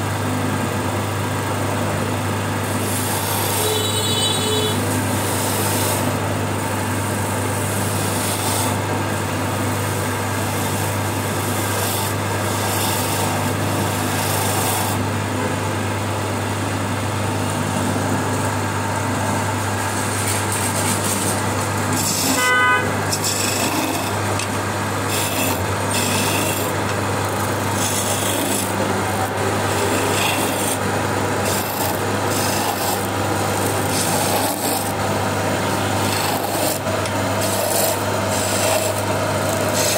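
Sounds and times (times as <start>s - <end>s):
lathe motor hum: 0.0s - 39.9s
tools scraping spinning wood: 2.6s - 3.9s, 4.7s - 6.3s, 7.1s - 9.4s, 10.2s - 15.0s, 20.0s - 39.9s
horn-like beep: 3.6s - 4.8s.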